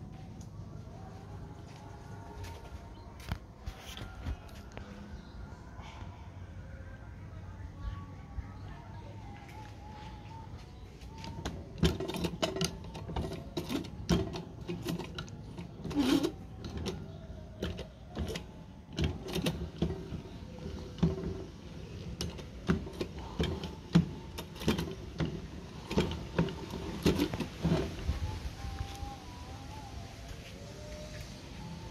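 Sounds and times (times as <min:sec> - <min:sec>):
hand-crank sewing machine clacking: 0:11.4 - 0:17.0, 0:17.6 - 0:28.0.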